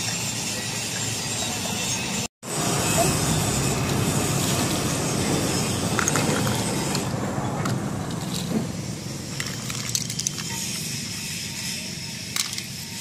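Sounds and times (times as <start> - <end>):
low rumbling noise: 2.5 - 10.4
metal bottle caps clinking: 5.9 - 8.6, 9.3 - 11.6, 12.2 - 13.0.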